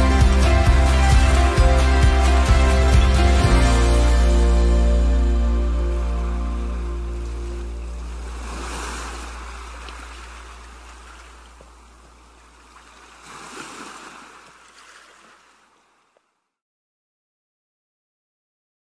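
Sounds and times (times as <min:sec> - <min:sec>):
low soundtrack music note: 0:03.4 - 0:08.6
ocean waves washing in: 0:06.0 - 0:16.1.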